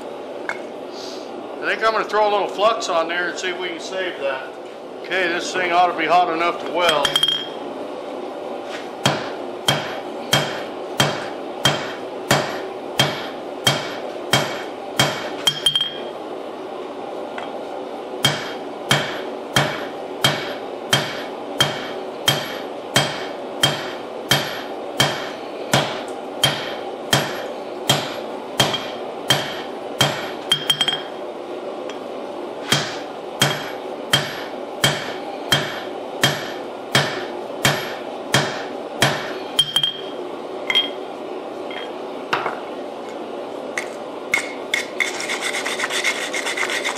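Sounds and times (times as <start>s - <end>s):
hammer striking hot metal on anvil: 9.0s - 16.0s, 18.2s - 31.1s, 32.7s - 40.1s.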